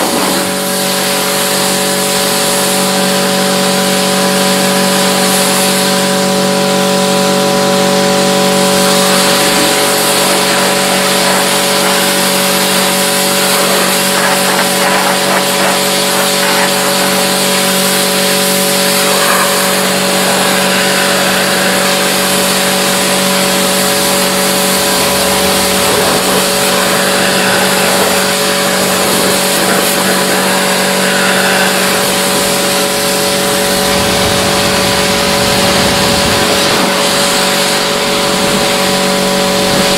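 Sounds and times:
motor hum: 0.0 - 39.9
loud rushing hiss: 7.6 - 38.7.

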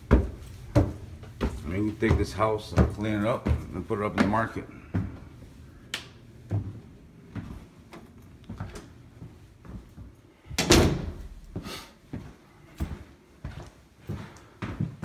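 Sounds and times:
footsteps in house: 0.0 - 15.0
interior door opening: 10.6 - 11.5.

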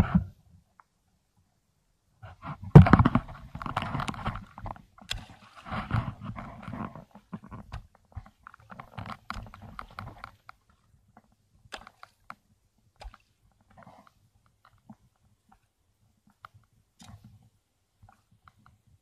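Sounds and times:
shallow water splashing: 3.9 - 7.4.

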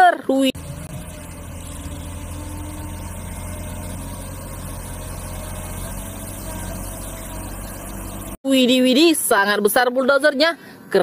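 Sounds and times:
diesel loader engine running: 0.5 - 8.4.

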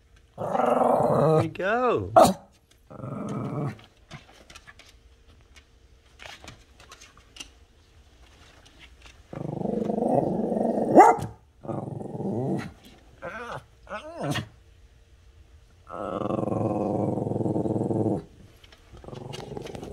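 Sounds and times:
small dog growling: 0.4 - 1.5, 2.2 - 3.9, 9.3 - 14.6, 15.8 - 19.9
dog yapping: 2.2 - 2.5, 10.9 - 11.4.

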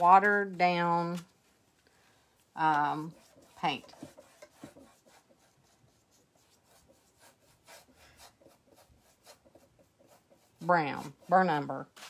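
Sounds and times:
paintbrush scratching on rough wood: 2.6 - 12.0.

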